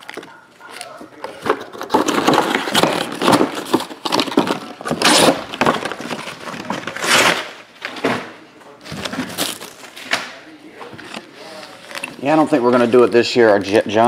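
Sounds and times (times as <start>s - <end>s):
card pack wrappers tearing and crinkling: 1.6s - 7.5s.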